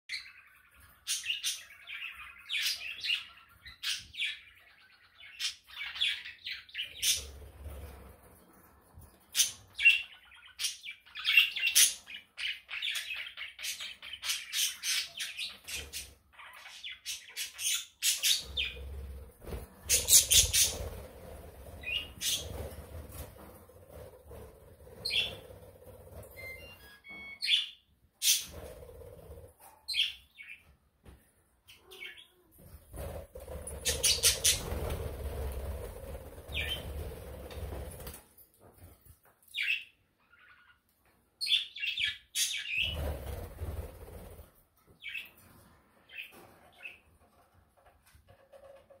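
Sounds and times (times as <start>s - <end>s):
budgerigars chirping and warbling: 0.1s - 8.0s, 9.3s - 26.8s, 27.4s - 30.7s, 33.0s - 37.3s, 39.6s - 44.4s.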